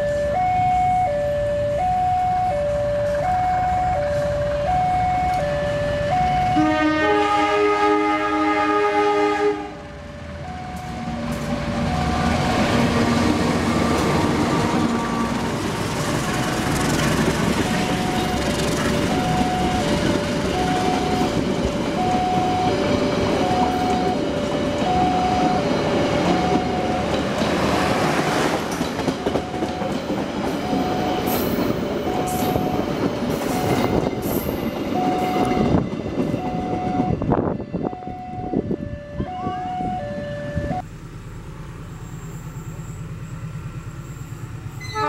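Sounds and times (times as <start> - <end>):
two-tone level-crossing alarm: 0.0 - 7.0, 9.8 - 12.8, 16.5 - 27.3, 29.0 - 40.8
train wheels rumbling on rails: 1.8 - 6.6, 9.6 - 40.0.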